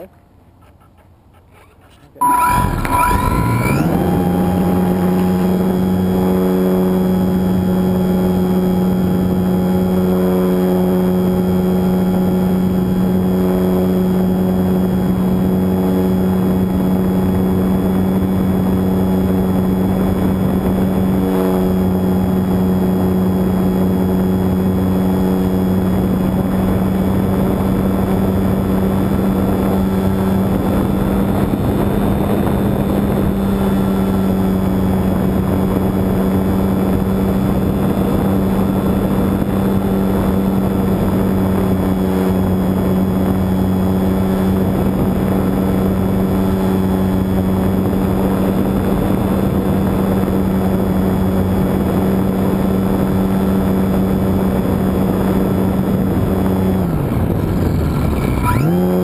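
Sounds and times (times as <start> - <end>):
model plane motor and propeller: 3.8 - 59.0.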